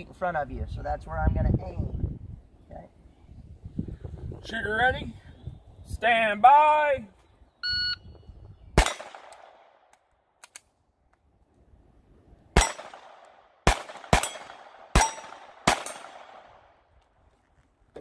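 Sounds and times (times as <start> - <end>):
pistol shots: 8.8 - 10.6, 12.6 - 16.8.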